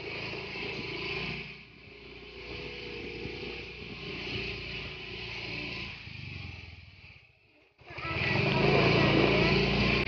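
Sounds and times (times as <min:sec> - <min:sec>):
motorcycle engine running: 0:00.0 - 0:10.0.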